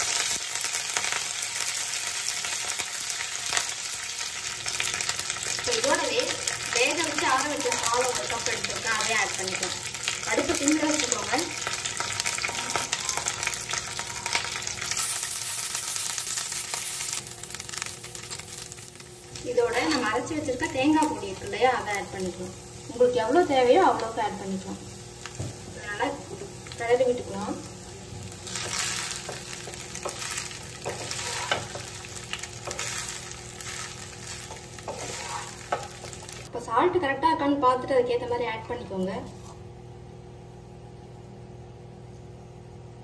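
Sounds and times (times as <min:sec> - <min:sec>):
seeds sizzling in hot oil: 0:00.0 - 0:36.5
wooden spatula scraping a pan: 0:28.5 - 0:31.9, 0:32.6 - 0:36.0.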